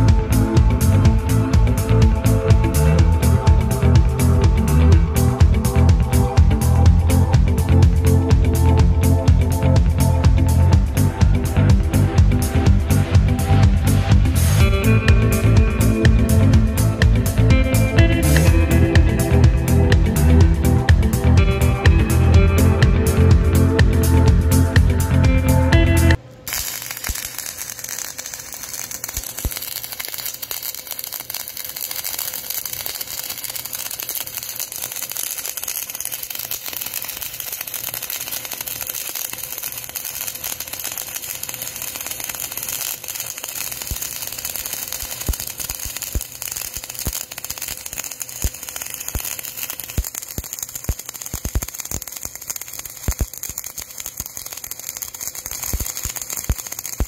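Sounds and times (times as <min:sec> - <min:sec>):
welding arc crackling hiss: 0:00.0 - 0:21.3, 0:26.1 - 0:57.0
welding spatter pops: 0:26.1 - 0:57.0.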